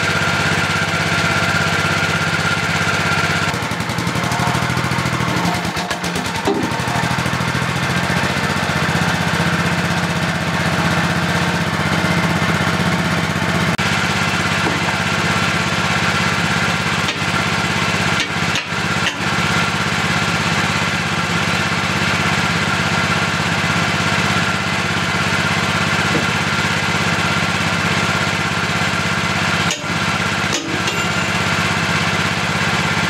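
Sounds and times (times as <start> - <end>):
small engine idling: 0.0 - 33.0.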